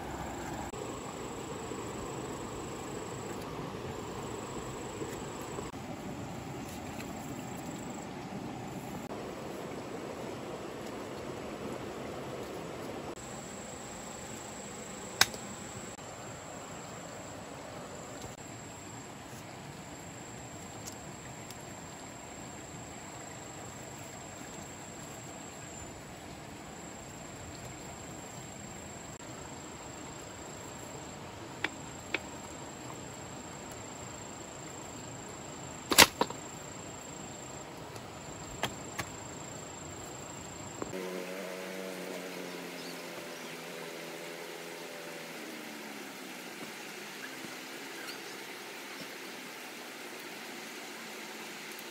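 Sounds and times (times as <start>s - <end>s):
high insect trill: 13.1s - 19.3s, 26.8s - 51.7s.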